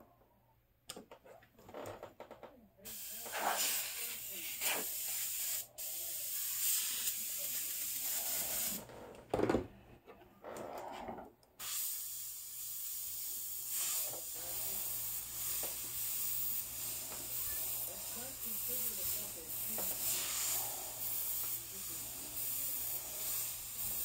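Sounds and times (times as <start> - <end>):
airbrush hissing: 2.9 - 8.9, 11.6 - 24.0.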